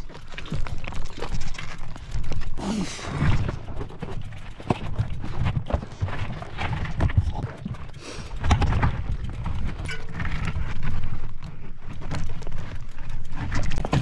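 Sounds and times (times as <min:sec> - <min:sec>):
bike clattering over rocks: 0:00.0 - 0:14.0.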